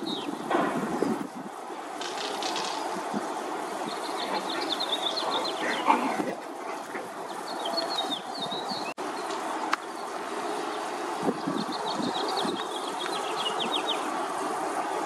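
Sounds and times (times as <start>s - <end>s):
birds chirping: 0.0s - 15.0s
outdoor background hiss: 0.0s - 15.0s
sharp click: 2.0s - 2.8s.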